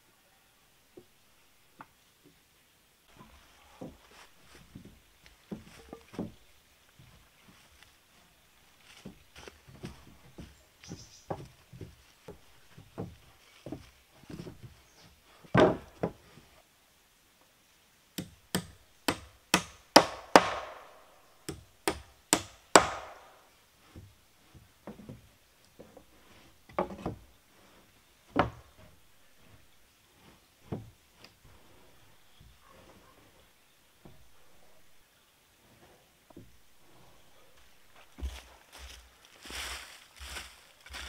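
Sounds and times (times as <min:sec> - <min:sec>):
wooden boards knocking: 0:15.5 - 0:16.2, 0:18.2 - 0:20.9, 0:21.5 - 0:23.4.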